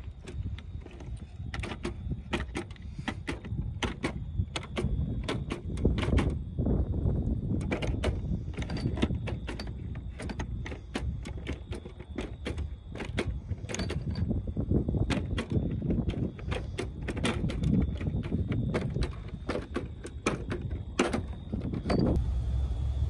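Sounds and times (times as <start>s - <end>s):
steady low rumble: 20.8s - 23.0s.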